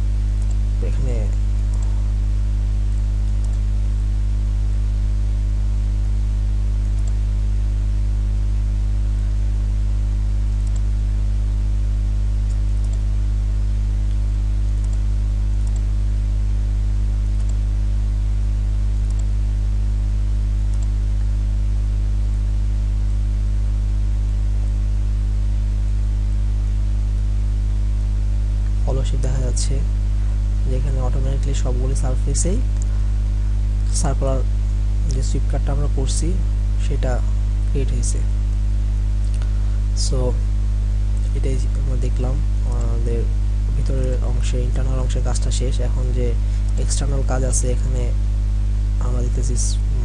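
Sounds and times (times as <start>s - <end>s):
electrical mains hum: 0.0s - 50.0s
faint mouse clicks: 1.2s - 1.9s, 3.3s - 3.6s, 6.8s - 7.2s, 10.6s - 10.9s, 12.4s - 13.0s, 15.6s - 15.9s, 17.4s - 17.6s, 19.0s - 19.3s, 20.7s - 21.3s, 39.2s - 39.5s.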